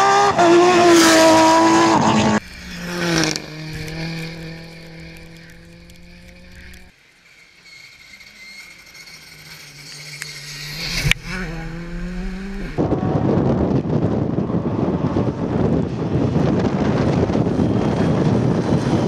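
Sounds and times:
rally car engine passing: 0.0 - 19.0
wind and tyre rushing: 0.0 - 19.0.

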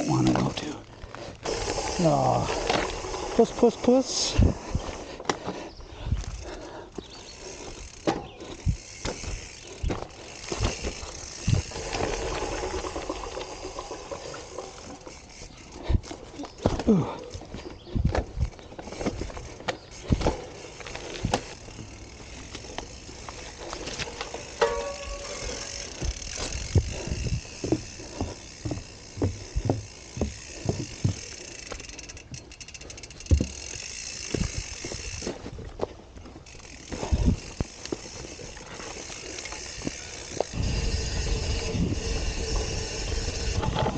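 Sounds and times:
bike frame rattling: 0.0 - 43.9
footsteps on dirt trail: 0.1 - 43.9
freewheel clicking: 7.3 - 15.8, 20.0 - 35.3, 36.4 - 43.9
bike thumping over roots: 7.9 - 15.2, 15.9 - 31.9.

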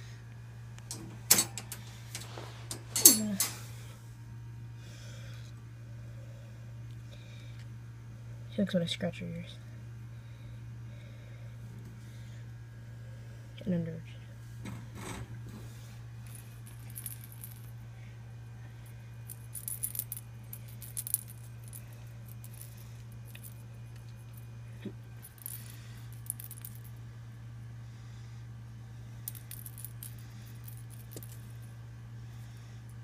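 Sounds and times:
steady low hum: 0.0 - 33.0
metallic jingling and rattling: 0.9 - 3.6.

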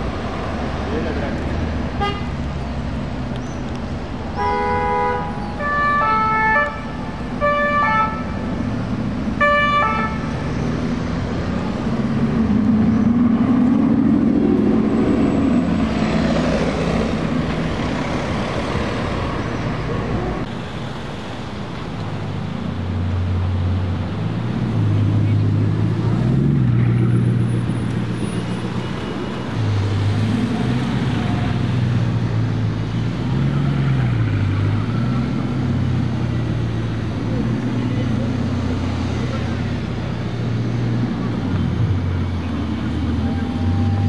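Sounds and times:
vehicle horn blasts: 2.0 - 2.3, 4.4 - 8.3.

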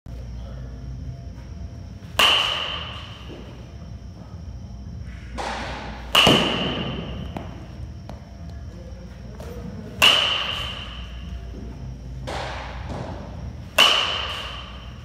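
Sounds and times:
baseball bat hitting ball: 2.0 - 3.5, 5.3 - 8.2, 10.0 - 11.4, 12.2 - 15.0.

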